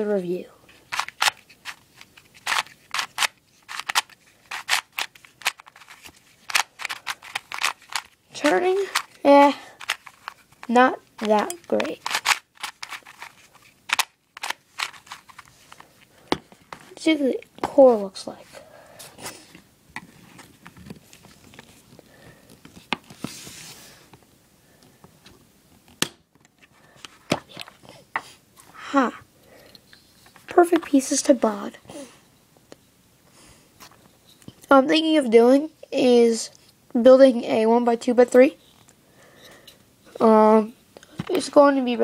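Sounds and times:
puzzle cube clicking: 0.9 - 15.4.

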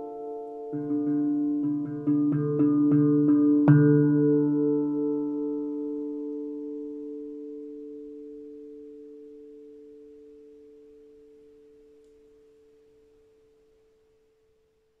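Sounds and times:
handpan struck with mallets: 0.0 - 8.9.

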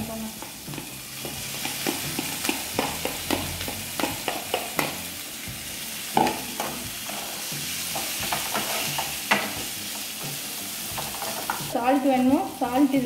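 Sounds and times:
oil sizzling: 0.0 - 13.0
spatula scraping a frying pan: 10.8 - 11.7.

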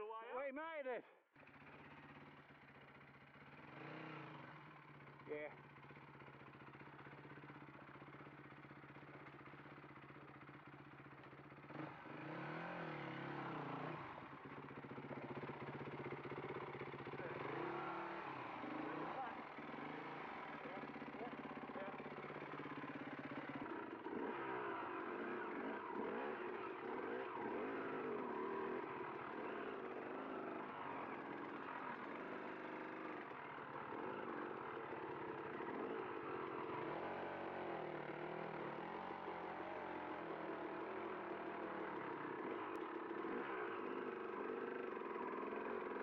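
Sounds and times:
motorbike engine revving: 1.4 - 46.0.

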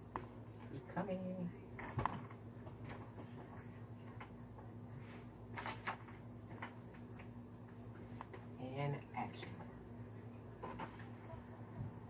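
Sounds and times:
steady low hum: 0.0 - 12.0
faint clicks and taps: 0.1 - 0.7, 1.8 - 4.7, 5.8 - 8.5.

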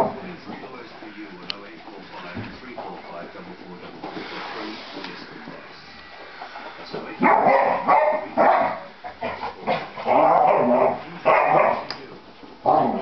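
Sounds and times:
dog barking and yapping: 7.2 - 8.8.

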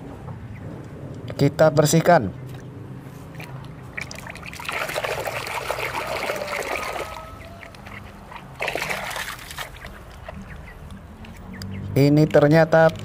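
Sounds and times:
water sloshing in a plastic bucket: 2.5 - 10.7.

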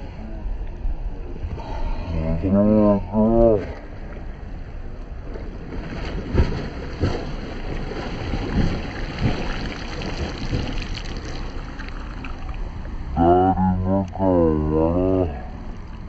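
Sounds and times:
swimmer's arm strokes splashing: 5.4 - 12.8.

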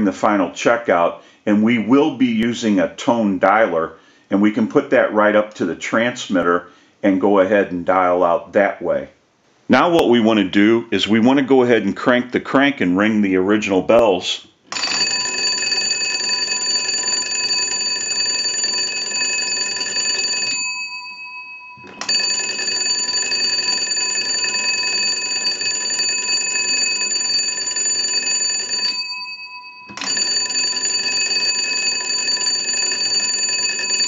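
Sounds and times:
telephone bells ringing: 14.7 - 34.0.

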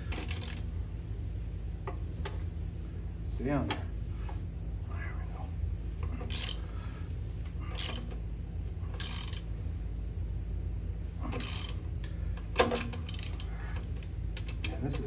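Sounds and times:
steady low hum: 0.0 - 15.0
metallic rasps: 6.2 - 6.7, 9.0 - 9.5.

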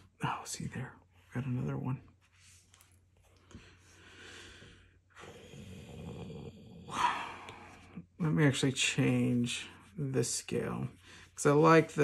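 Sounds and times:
man breathing: 3.3 - 5.6.

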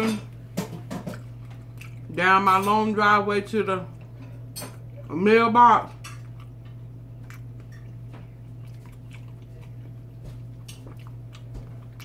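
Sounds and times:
steady low hum: 0.0 - 12.0
person chewing food: 1.1 - 2.2, 6.2 - 12.0.

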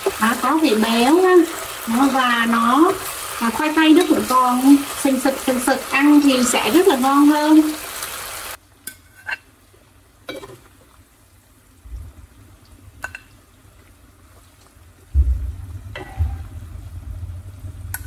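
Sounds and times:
low rumble: 15.2 - 18.0.

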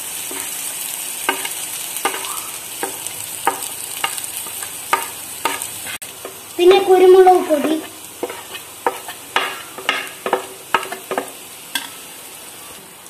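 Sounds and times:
onions sizzling in oil: 0.0 - 13.0
wooden spatula scraping pot: 7.6 - 11.4.

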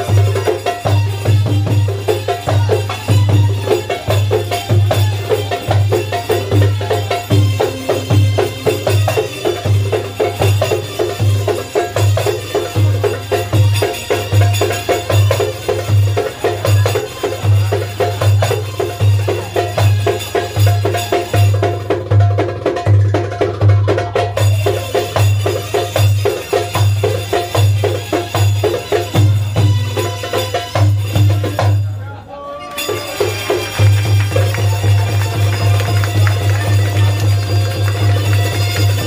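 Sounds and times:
belly-dance music: 33.2 - 39.0.

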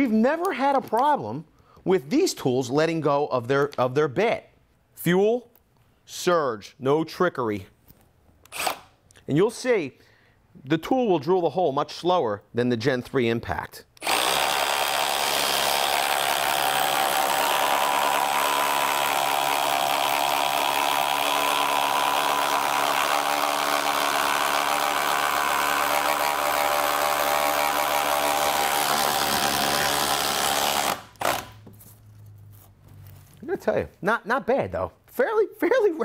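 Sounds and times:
impact driver boring into wood: 8.5 - 8.9, 14.0 - 31.6.

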